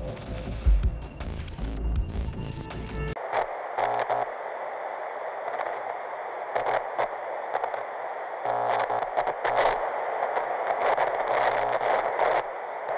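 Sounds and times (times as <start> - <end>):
buzzy interference bursts: 0.0 - 12.9
static hiss crackling: 3.1 - 12.9.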